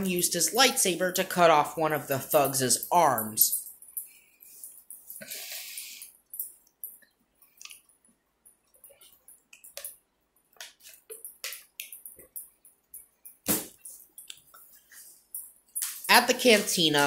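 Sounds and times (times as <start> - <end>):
soft clicks and ticks: 6.0 - 16.1.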